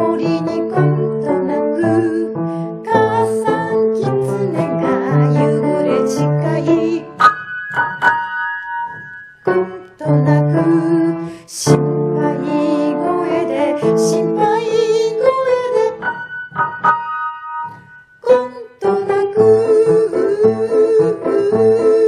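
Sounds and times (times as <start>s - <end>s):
woman singing: 0.0s - 7.2s, 9.6s - 16.2s, 18.2s - 22.0s
piano accompaniment: 0.0s - 22.0s.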